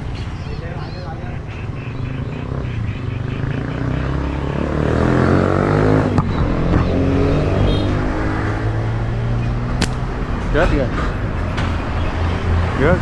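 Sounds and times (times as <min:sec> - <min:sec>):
engine revving: 0:02.4 - 0:11.2
sharp clicks: 0:09.8 - 0:10.2.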